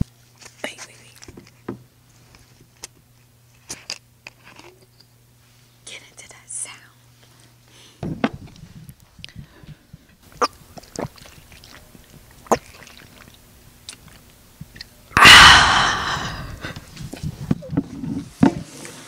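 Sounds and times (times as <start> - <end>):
gulping clicks: 10.3 - 14.9
breathy exhale into microphone: 15.2 - 16.9.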